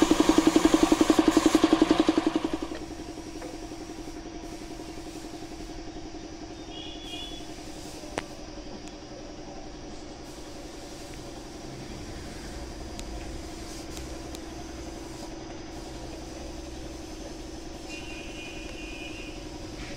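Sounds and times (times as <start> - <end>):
motor droning: 11.1 - 19.9.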